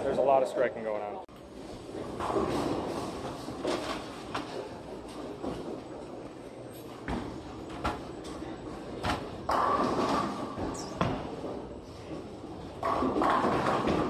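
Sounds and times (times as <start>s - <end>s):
bowling balls knocking pins: 9.0s - 14.0s.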